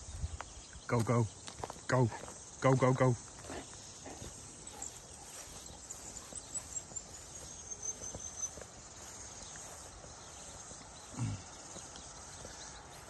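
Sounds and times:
insects chirping: 0:00.0 - 0:13.0
soft footsteps outdoors: 0:00.0 - 0:13.0
low vocal sound: 0:11.1 - 0:11.6.

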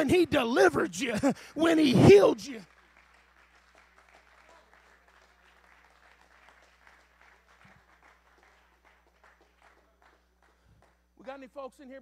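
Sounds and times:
faint hand clapping: 0:02.6 - 0:11.1.

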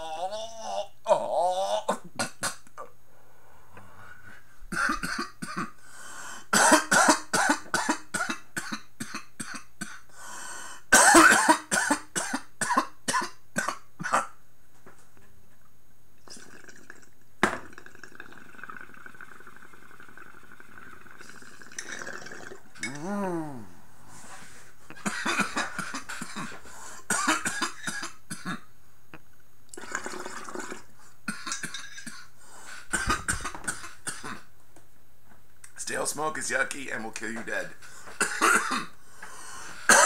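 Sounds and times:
man coughing: 0:10.9 - 0:14.4, 0:25.0 - 0:28.6, 0:38.2 - 0:38.9.

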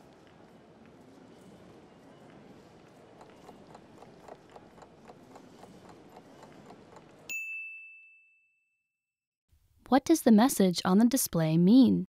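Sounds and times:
clock ticking: 0:02.8 - 0:07.3
bell ding: 0:07.3 - 0:08.9.

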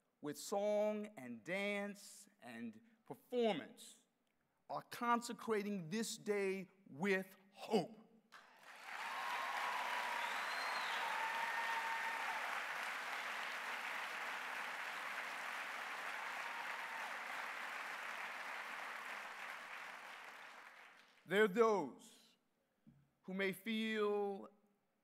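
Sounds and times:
audience applauding: 0:08.4 - 0:21.2.

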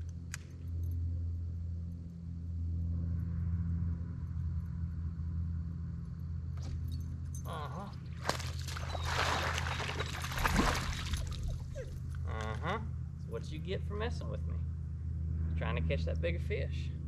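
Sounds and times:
boat motor humming: 0:06.6 - 0:17.0.

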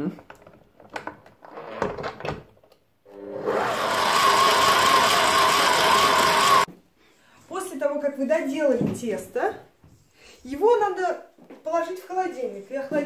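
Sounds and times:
stand mixer motor whining: 0:03.2 - 0:06.7.

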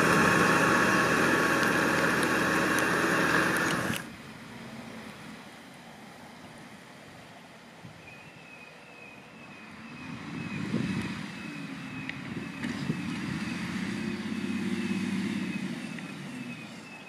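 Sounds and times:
tractor diesel engine rumble: 0:00.0 - 0:07.3, 0:10.0 - 0:17.0
faint high chirp: 0:08.0 - 0:10.7.

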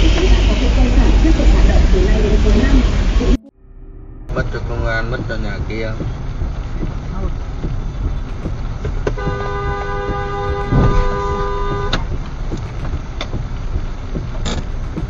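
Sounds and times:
road and rain noise: 0:00.0 - 0:03.4, 0:04.3 - 0:15.0
low thump: 0:03.6 - 0:15.0
car horn blast: 0:08.4 - 0:12.7.

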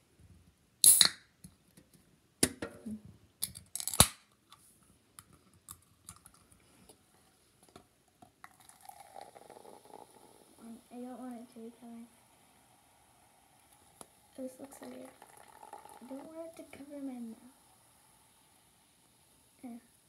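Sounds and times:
can seal cracking: 0:00.8 - 0:01.2, 0:03.4 - 0:04.4.

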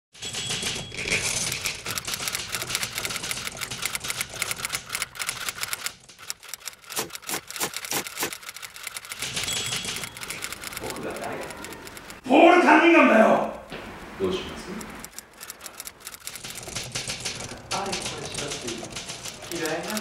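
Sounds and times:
manual typewriter clatter: 0:00.2 - 0:12.2, 0:14.8 - 0:20.0.

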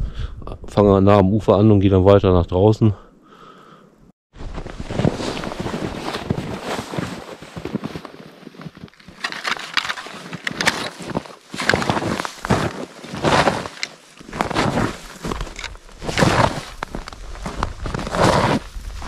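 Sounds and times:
boots crunching through snow: 0:04.4 - 0:19.0.

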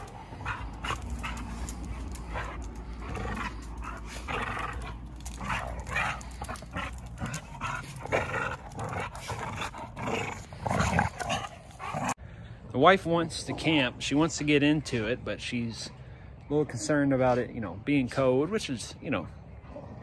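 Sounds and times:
dogs growling: 0:00.0 - 0:12.2.

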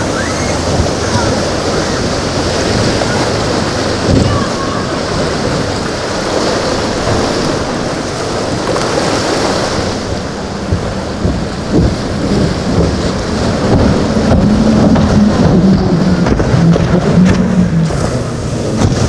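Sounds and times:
surf: 0:00.0 - 0:19.0
wind: 0:00.0 - 0:19.0
low thump: 0:10.6 - 0:18.0.

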